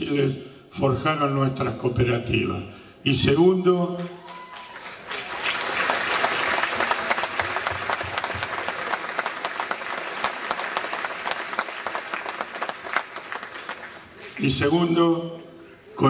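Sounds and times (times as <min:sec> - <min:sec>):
audience applauding: 0:04.2 - 0:14.7.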